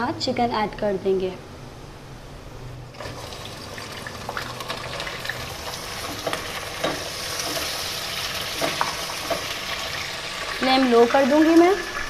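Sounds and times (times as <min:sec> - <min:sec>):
chicken sizzling in hot oil: 0:03.0 - 0:12.0.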